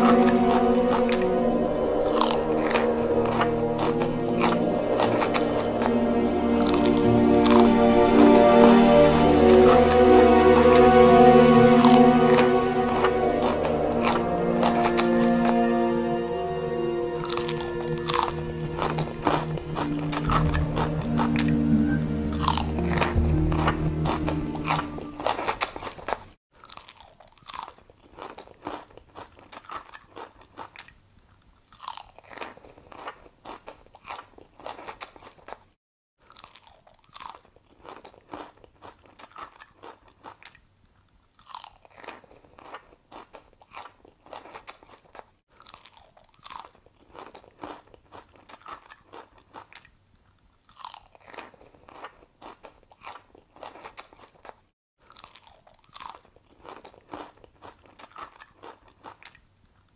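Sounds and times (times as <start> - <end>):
crunching and chewing bites: 24.3 - 59.8.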